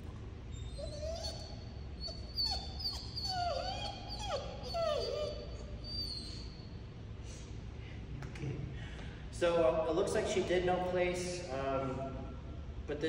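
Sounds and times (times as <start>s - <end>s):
dog whining: 0.4s - 6.8s.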